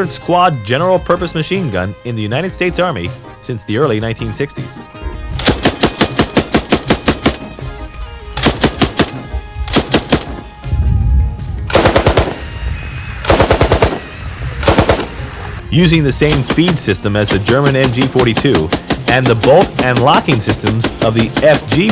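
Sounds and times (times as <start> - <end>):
machine gun firing bursts: 5.4 - 7.6, 8.4 - 10.4, 11.7 - 12.4, 13.2 - 15.2, 16.2 - 21.9.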